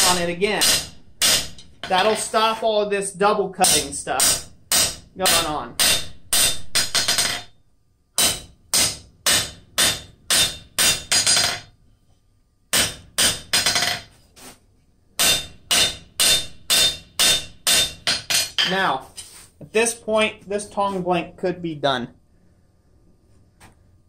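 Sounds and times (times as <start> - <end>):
hammer striking hot metal on anvil: 0.0 - 2.3, 3.6 - 7.5, 8.2 - 11.7, 12.7 - 14.1, 15.2 - 18.8.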